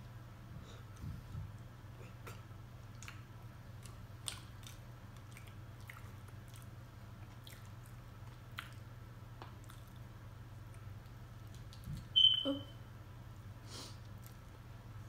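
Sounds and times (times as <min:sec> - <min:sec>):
wet chewing: 0:02.8 - 0:12.4.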